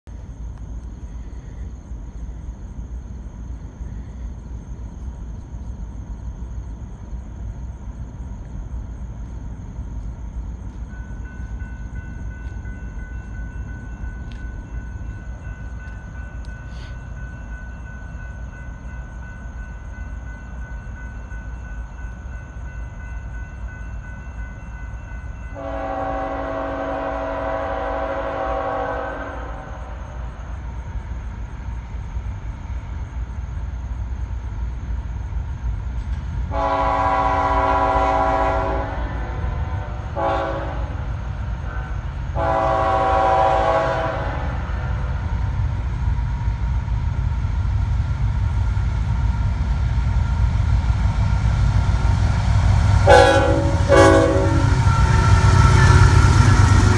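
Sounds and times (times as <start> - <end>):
locomotive horn blast: 25.6 - 29.9, 36.5 - 44.8, 53.0 - 56.9.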